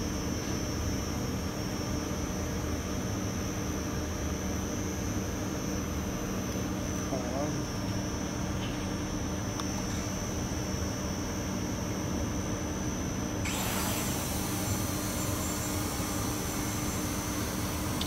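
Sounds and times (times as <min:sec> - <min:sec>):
drone propellers buzzing: 0:13.5 - 0:18.0
hiss: 0:13.5 - 0:18.0.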